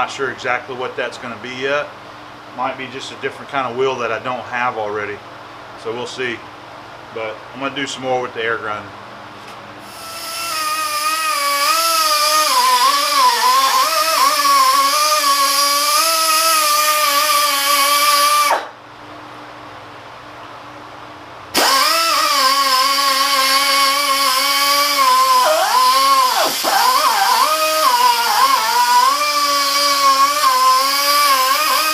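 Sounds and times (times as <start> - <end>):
air grinder whining: 9.8 - 18.8, 21.5 - 31.9.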